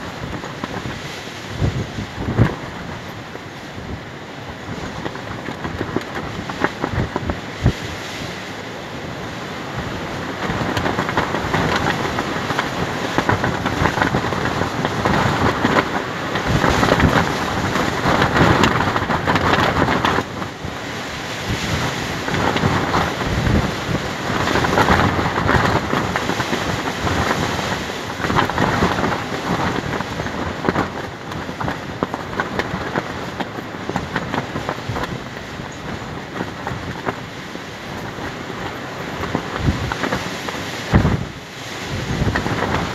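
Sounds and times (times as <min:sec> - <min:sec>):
wind buffeting microphone: 0:00.0 - 0:42.9
fabric flapping and snapping: 0:10.4 - 0:20.5, 0:21.2 - 0:42.9.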